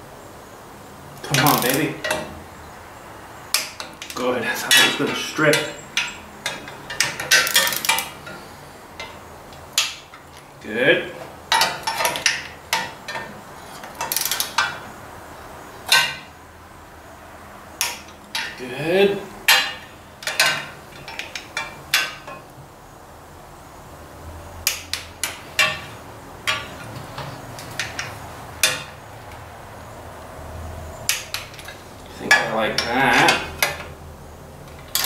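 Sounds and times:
metal tools clinking on bolts: 1.2s - 2.4s, 3.5s - 9.2s, 11.2s - 14.9s, 15.8s - 16.3s, 17.8s - 18.6s, 19.4s - 22.5s, 24.6s - 29.0s, 31.0s - 34.0s, 34.7s - 35.0s.

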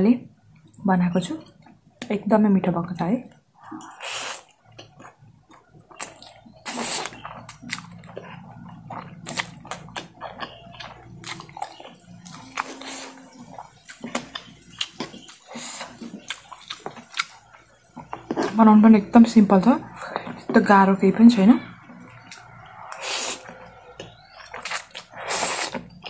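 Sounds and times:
wet chewing clicks: 3.3s - 18.7s, 21.6s - 26.0s
noodles slurping: 3.8s - 18.3s, 22.0s - 26.0s.

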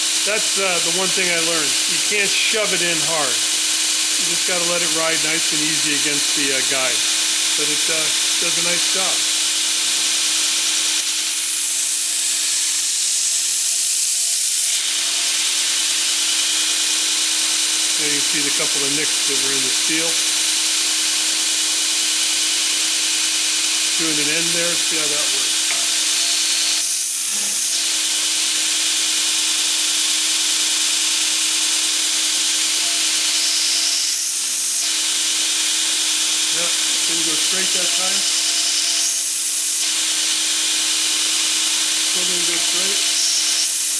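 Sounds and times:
belt grinder humming: 0.0s - 43.9s
steel grinding hiss: 4.2s - 9.4s.

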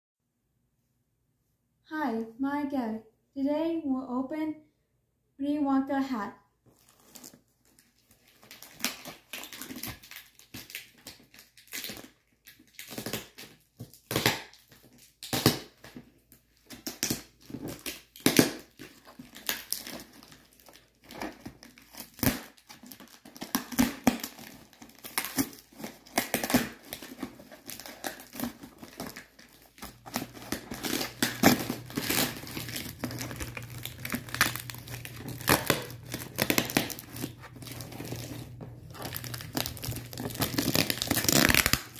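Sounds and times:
packing tape peeled and torn: 6.8s - 41.9s
cardboard flaps rustling: 30.0s - 41.8s.

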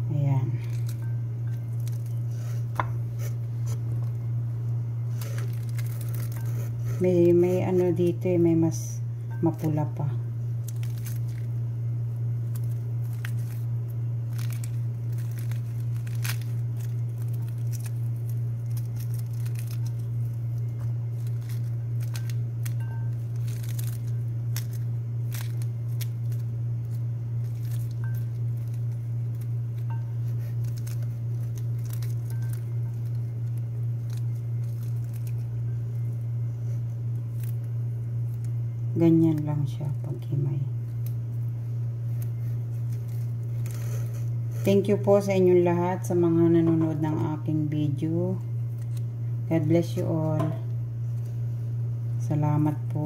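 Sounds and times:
steady low hum: 0.0s - 53.0s
peel tearing: 5.1s - 6.8s, 10.6s - 11.6s, 12.3s - 36.1s, 37.0s - 38.8s, 40.8s - 44.6s, 48.6s - 49.1s.

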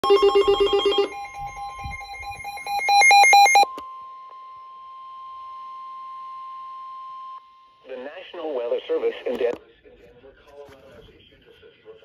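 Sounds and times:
fast pulsed electronic beeping: 0.0s - 3.6s
steady alarm tone: 0.0s - 3.7s.

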